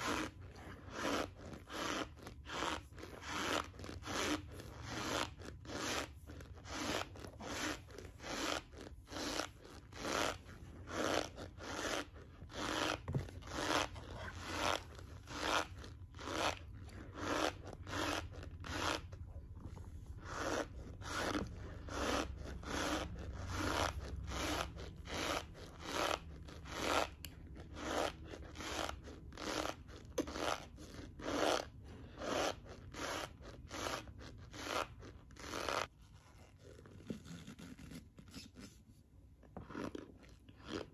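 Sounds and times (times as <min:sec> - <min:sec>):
cornstarch being chewed: 0:39.4 - 0:40.9.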